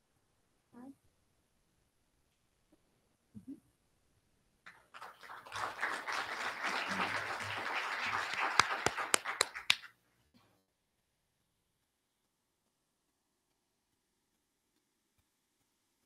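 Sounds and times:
audience applauding: 0:04.7 - 0:09.9
loud sharp claps close by: 0:04.7 - 0:10.0.

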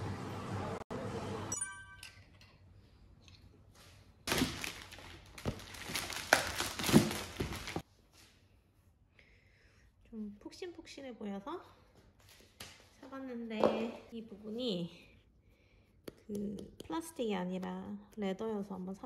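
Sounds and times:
plastic bag crinkling: 0:04.3 - 0:07.8.

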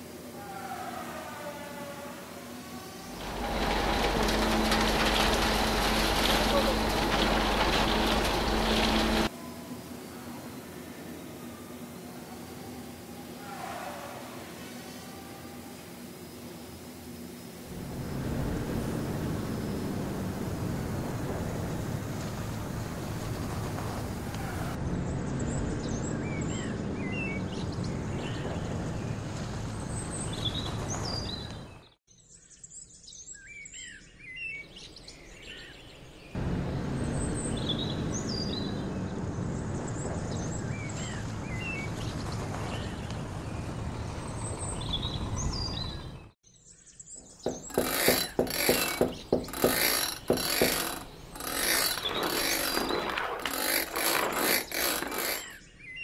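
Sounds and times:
loud mechanical clatters and rattles: 0:03.2 - 0:09.3, 0:47.4 - 0:55.5
truck engine running: 0:03.2 - 0:09.3
birds chirping: 0:47.0 - 0:53.5.

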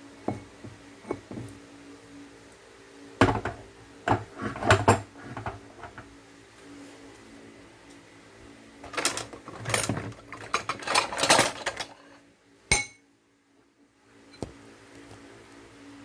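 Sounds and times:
scraping and handling noise: 0:03.2 - 0:07.2, 0:08.8 - 0:12.2.

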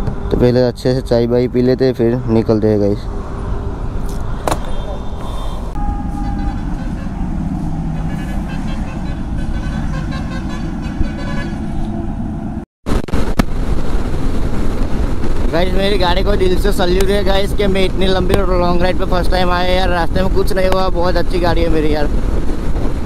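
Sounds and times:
roadside traffic noise: 0:00.0 - 0:23.0
wind rushing: 0:03.0 - 0:23.0
vehicle horns: 0:04.2 - 0:12.1.

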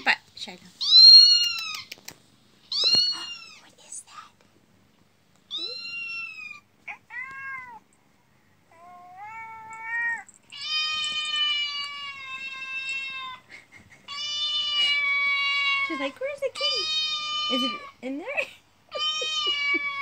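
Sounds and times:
kitten meowing through speaker: 0:05.5 - 0:07.8.

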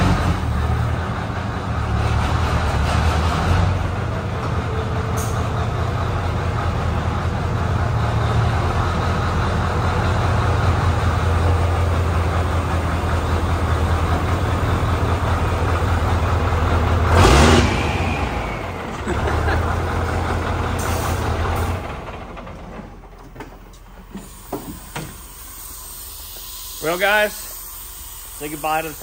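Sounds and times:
diesel truck engine idling: 0:00.0 - 0:26.2
air brakes hissing: 0:05.0 - 0:05.6, 0:17.5 - 0:19.0, 0:20.5 - 0:21.9, 0:24.0 - 0:29.0.

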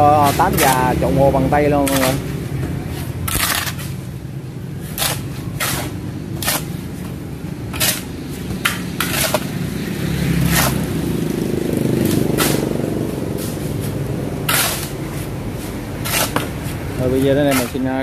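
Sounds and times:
metal tool scraping wet mortar: 0:00.2 - 0:02.3, 0:02.9 - 0:04.0, 0:04.8 - 0:06.8, 0:07.7 - 0:08.1, 0:09.0 - 0:09.5, 0:14.5 - 0:18.0.

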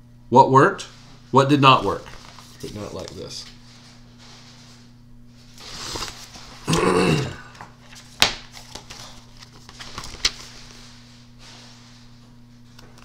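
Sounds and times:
steady low hum: 0:00.0 - 0:13.0
book pages rustling: 0:01.9 - 0:04.6, 0:07.8 - 0:12.0.

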